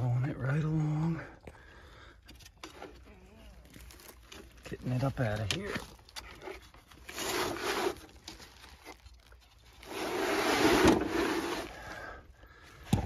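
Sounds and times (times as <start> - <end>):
plastic sheeting crinkling and scraping: 2.7 - 12.0.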